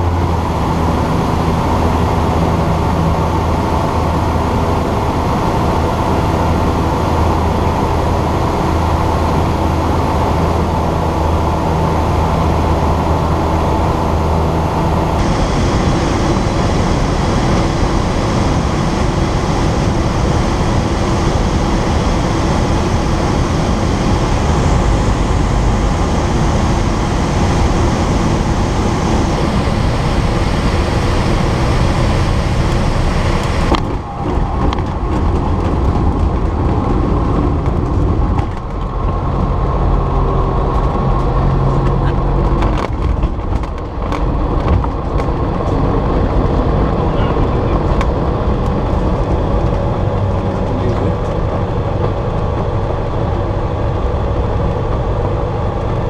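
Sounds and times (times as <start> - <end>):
airflow rushing: 0.0 - 42.6
light aircraft engine running: 0.0 - 56.0.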